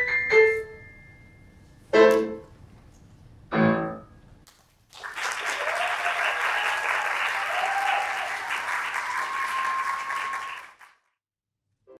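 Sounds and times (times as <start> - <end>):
audience applauding: 4.9 - 11.2.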